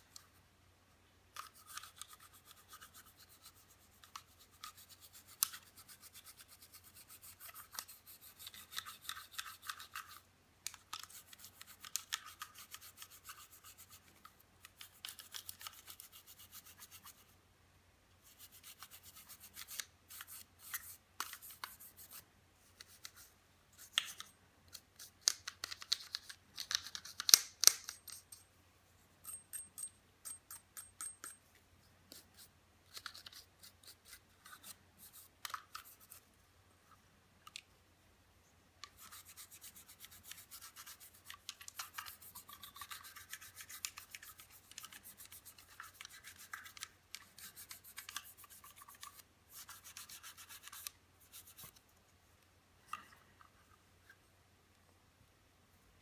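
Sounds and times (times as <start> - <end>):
brush scrubbing metal parts: 38.8 - 51.7.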